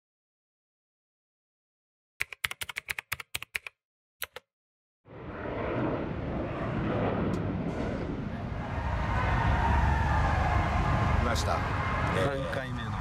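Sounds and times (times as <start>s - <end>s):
outdoor traffic noise: 5.1s - 13.0s.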